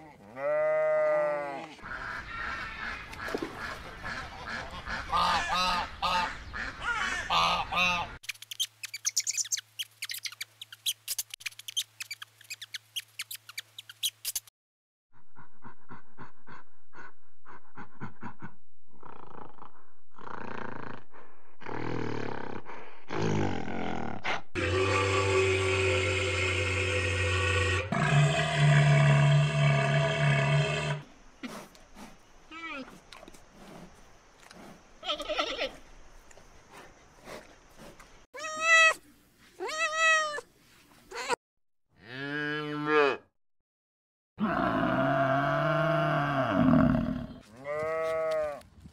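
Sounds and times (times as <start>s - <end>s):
gorilla panting: 15.2s - 19.4s.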